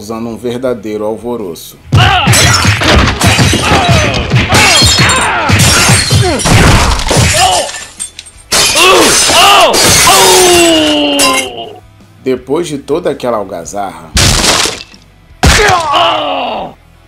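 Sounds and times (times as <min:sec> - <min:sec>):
people shouting and grunting: 0:01.8 - 0:07.9, 0:08.6 - 0:12.0, 0:15.4 - 0:17.0
things breaking: 0:02.3 - 0:11.6, 0:14.2 - 0:16.0
glass shattering: 0:02.3 - 0:11.7, 0:14.2 - 0:15.8.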